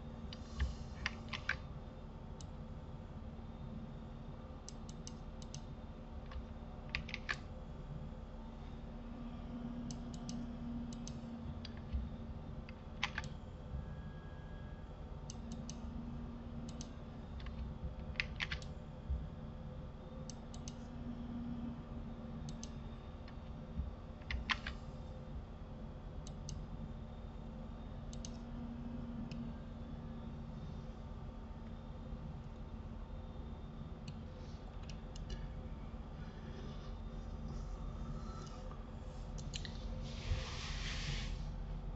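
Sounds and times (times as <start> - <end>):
steady low hum: 0.0 - 41.9
keyboard and mouse clicks: 0.3 - 1.6, 4.7 - 7.5, 9.9 - 12.0, 12.7 - 13.4, 16.6 - 18.7, 24.2 - 24.8, 28.1 - 28.4, 39.4 - 39.8.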